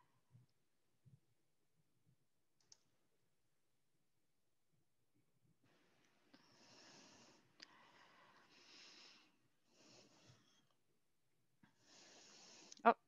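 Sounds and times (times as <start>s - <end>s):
breathing close to microphone: 6.3s - 10.8s, 11.6s - 12.8s.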